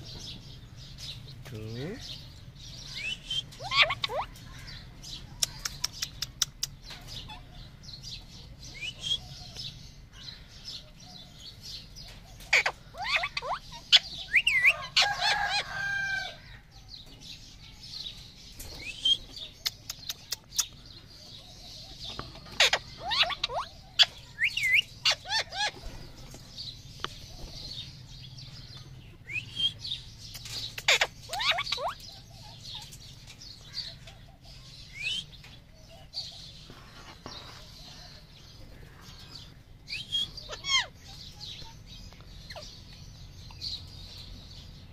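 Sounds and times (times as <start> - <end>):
parakeet squawking: 2.9 - 4.8, 12.4 - 15.6, 22.0 - 25.9, 30.6 - 32.9, 39.9 - 41.7.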